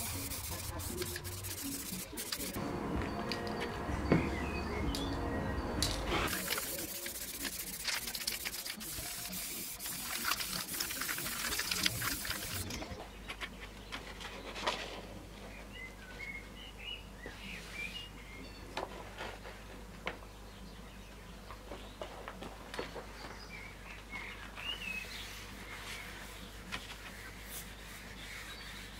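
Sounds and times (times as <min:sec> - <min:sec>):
aerosol spray can hissing: 0:00.0 - 0:02.6, 0:06.3 - 0:12.7
paper rustling: 0:00.0 - 0:02.6, 0:06.2 - 0:15.0, 0:25.7 - 0:28.9
birds chirping: 0:00.0 - 0:14.6.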